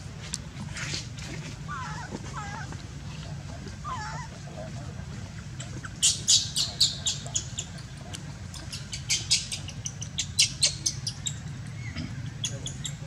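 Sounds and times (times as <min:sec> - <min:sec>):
baby monkey squeaking: 0:05.8 - 0:07.7, 0:08.6 - 0:13.0.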